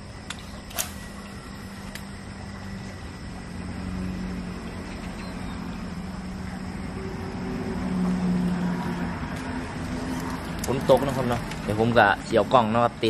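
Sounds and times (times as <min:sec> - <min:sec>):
vehicle engine droning: 0:00.0 - 0:13.0.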